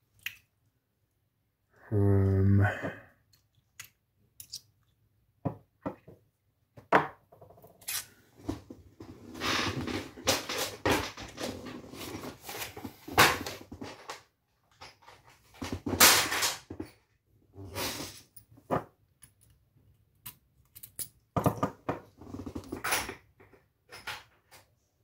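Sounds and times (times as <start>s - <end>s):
objects rustling and clattering: 7.3s - 19.0s, 21.4s - 24.9s.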